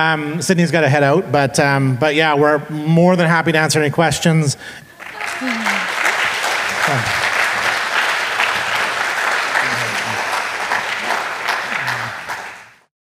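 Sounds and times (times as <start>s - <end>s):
audience applauding: 4.9s - 12.9s
murmur of voices: 5.0s - 7.4s.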